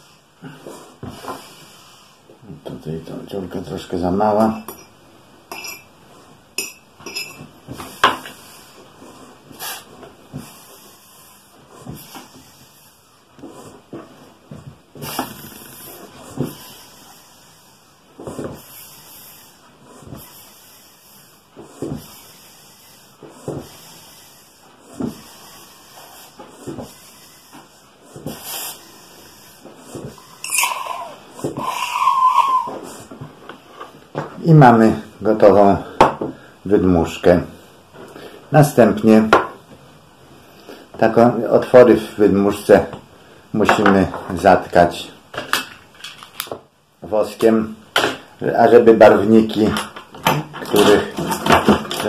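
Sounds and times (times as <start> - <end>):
foot pump puffing air: 0.0 - 2.4, 7.4 - 35.0
sharp air hiss: 22.0 - 29.6.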